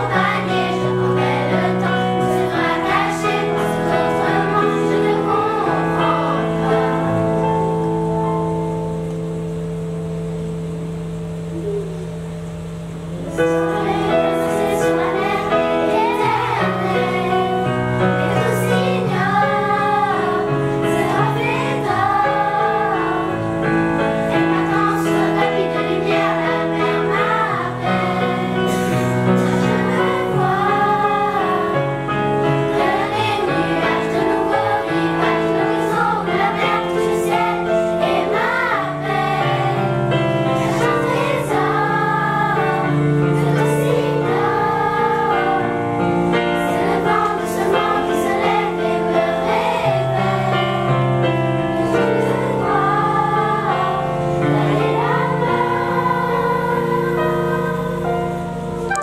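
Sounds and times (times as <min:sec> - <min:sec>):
children's choir singing: 0:00.0 - 0:09.1, 0:13.1 - 0:59.0
electronic keyboard chords: 0:00.0 - 0:59.0.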